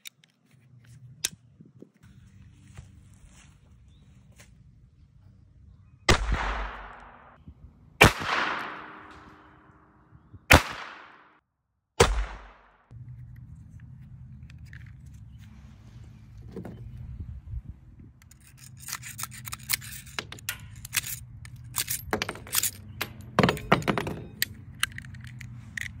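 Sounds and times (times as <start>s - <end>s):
pistol shots with echo: 6.1s - 7.4s, 8.0s - 9.7s, 10.5s - 11.3s, 12.0s - 12.7s
metallic clicks and scrapes: 12.9s - 16.1s, 18.1s - 26.0s.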